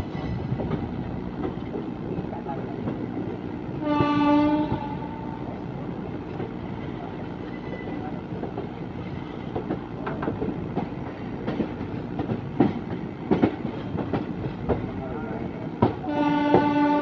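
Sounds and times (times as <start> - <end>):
train rumbling: 0.0 - 17.0
train horn: 3.8 - 5.5, 16.0 - 17.0
wheels clicking over rail joints: 8.4 - 15.0.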